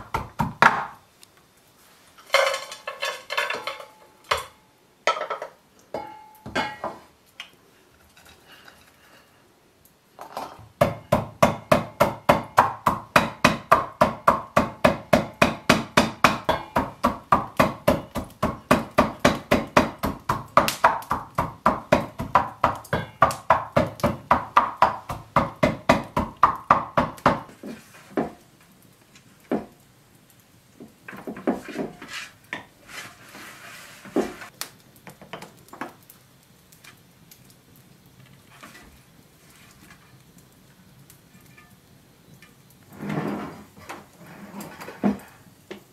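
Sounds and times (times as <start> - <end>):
pestle pounding nuts in mortar: 0.0 - 1.0, 10.6 - 27.5.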